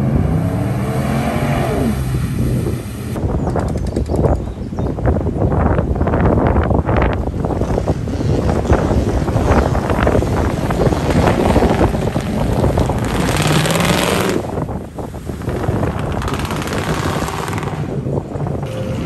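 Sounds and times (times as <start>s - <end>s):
pickup truck engine revving: 0.0s - 3.2s, 7.8s - 17.9s
wind buffeting microphone: 0.0s - 19.0s
tyres spinning through mud: 9.0s - 17.9s.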